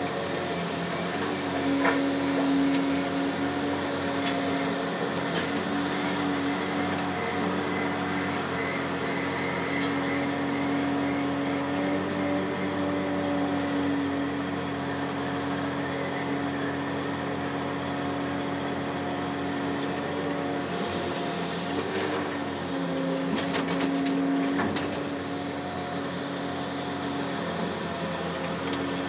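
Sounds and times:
excavator engine and hydraulics: 0:00.0 - 0:29.0.

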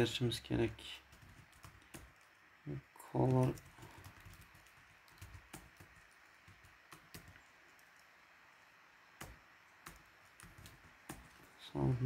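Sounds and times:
faint keyboard keystrokes: 0:01.1 - 0:02.4, 0:03.2 - 0:08.2, 0:09.2 - 0:11.6.

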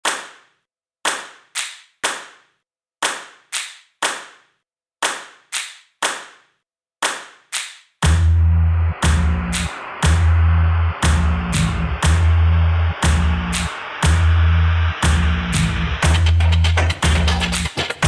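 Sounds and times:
echoing hand claps: 0:00.0 - 0:08.3, 0:09.0 - 0:18.0
electronic music with heavy bass: 0:08.0 - 0:18.0.

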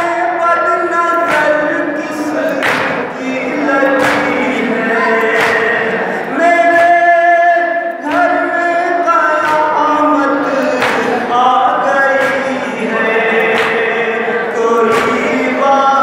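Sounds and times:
men chanting in unison: 0:00.0 - 0:16.0
chest-beating slaps: 0:01.2 - 0:01.6, 0:02.4 - 0:04.6, 0:05.2 - 0:05.9, 0:10.6 - 0:11.2, 0:12.0 - 0:14.0, 0:14.8 - 0:15.4.

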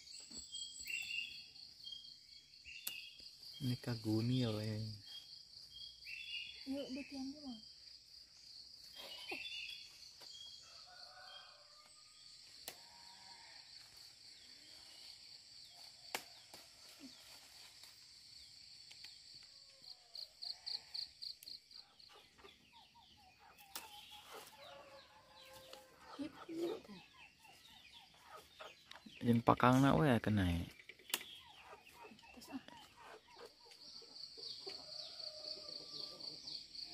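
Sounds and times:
insects droning: 0:00.0 - 0:36.9
leaves snapping and rustling: 0:12.6 - 0:12.8, 0:16.0 - 0:18.0, 0:23.7 - 0:24.0
chickens clucking: 0:21.8 - 0:29.8, 0:30.8 - 0:36.9.

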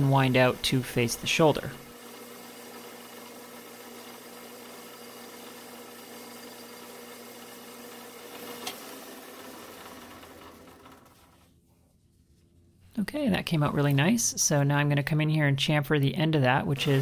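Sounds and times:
lathe motor hum: 0:00.0 - 0:11.5, 0:16.7 - 0:17.0.

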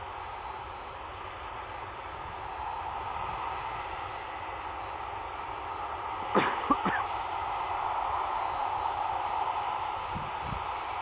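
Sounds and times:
jet engine noise: 0:00.0 - 0:11.0
person coughing: 0:06.4 - 0:07.1.

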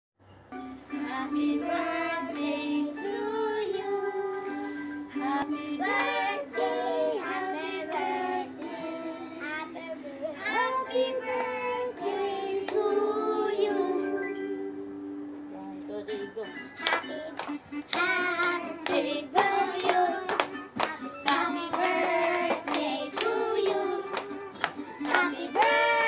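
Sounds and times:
music: 0:00.2 - 0:26.0
children singing: 0:01.0 - 0:14.6, 0:17.9 - 0:26.0.

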